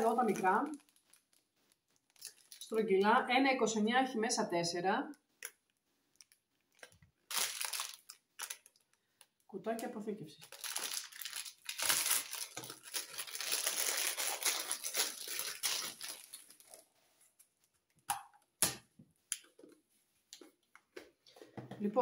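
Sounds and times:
plastic packaging crinkling and tearing: 0:00.0 - 0:02.8, 0:05.5 - 0:16.9.

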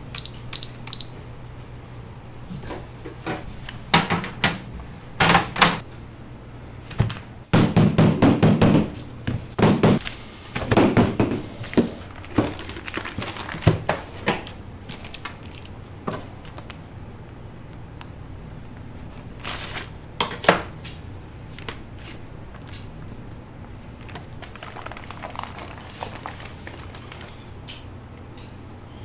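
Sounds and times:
knocks and thuds: 0:07.5 - 0:10.0
rustling handling noises: 0:09.0 - 0:16.8, 0:18.6 - 0:20.0, 0:21.4 - 0:23.0, 0:23.7 - 0:27.9.

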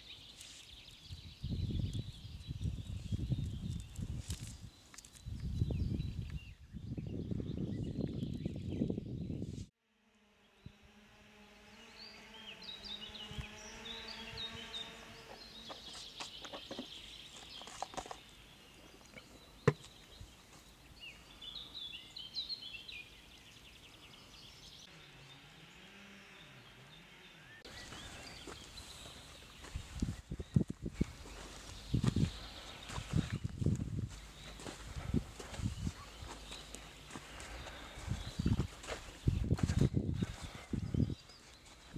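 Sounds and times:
small birds chirping: 0:00.0 - 0:09.4, 0:11.8 - 0:41.9
low steady hum: 0:09.8 - 0:17.3
clicks and knocks from handling gear: 0:16.3 - 0:18.2.

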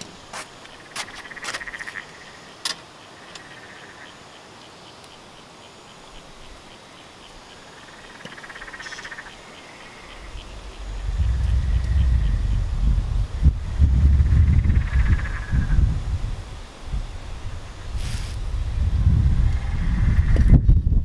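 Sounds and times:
ticking frog chorus: 0:00.0 - 0:20.7
frog trilled call: 0:07.5 - 0:12.8, 0:14.1 - 0:15.8.

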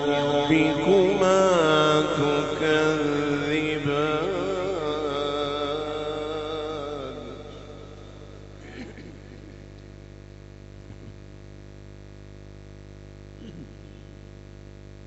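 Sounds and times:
short vocal sound: 0:00.0 - 0:09.6, 0:13.4 - 0:14.2
electrical mains hum: 0:00.0 - 0:15.0
person clearing throat: 0:07.9 - 0:09.7, 0:10.9 - 0:11.2, 0:13.4 - 0:14.2.

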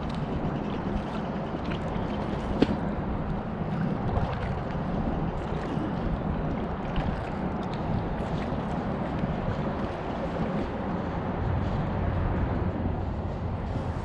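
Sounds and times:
steady low rumble: 0:00.0 - 0:14.0
paddle splashing in water: 0:00.1 - 0:10.8.

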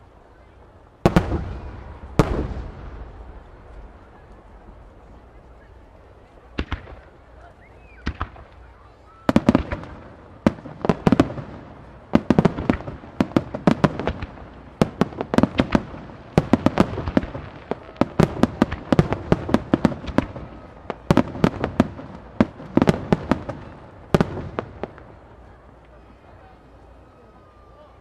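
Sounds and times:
fireworks launching and bursting: 0:01.0 - 0:25.9.

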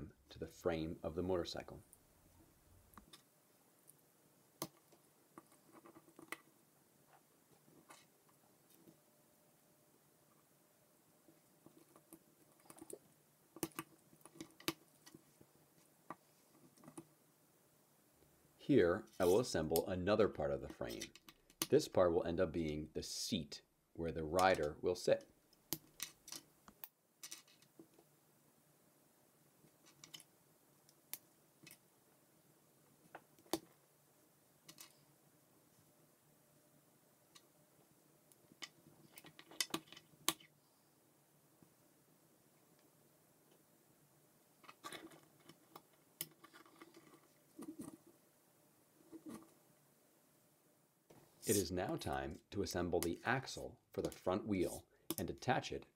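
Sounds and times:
plastic pieces clicking together: 0:38.6 - 0:40.5.

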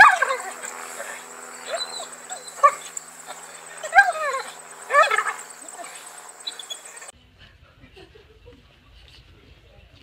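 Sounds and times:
dog whining: 0:00.0 - 0:07.1.

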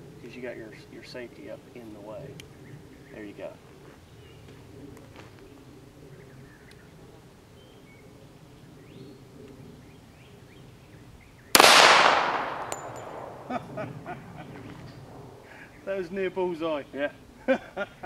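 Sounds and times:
pistol shot with echo: 0:11.5 - 0:13.7.

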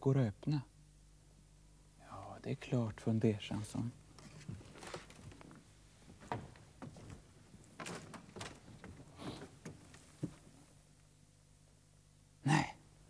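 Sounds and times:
footsteps on wooden floorboards: 0:04.2 - 0:10.7
hand fumbling at door handle: 0:07.8 - 0:10.4.

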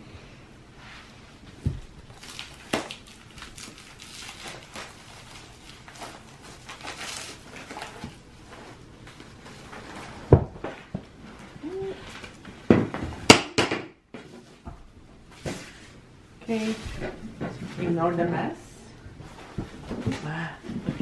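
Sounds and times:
rug wrapping rustling: 0:00.8 - 0:12.6.

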